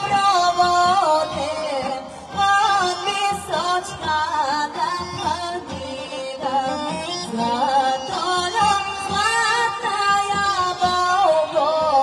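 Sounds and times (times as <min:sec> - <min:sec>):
steady drumbeat: 0:00.0 - 0:12.0
woman singing through a pa: 0:00.0 - 0:12.0.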